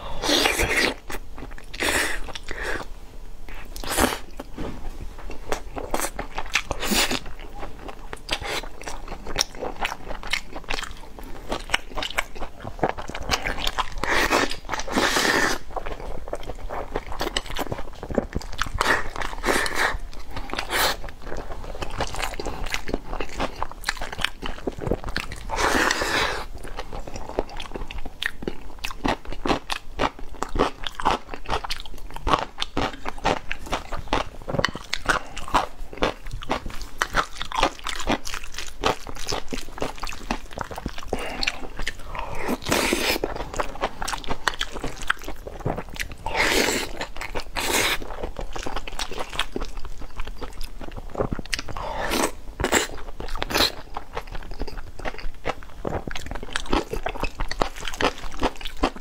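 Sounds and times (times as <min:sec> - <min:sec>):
wet chewing and crunching: 0:05.2 - 0:59.0.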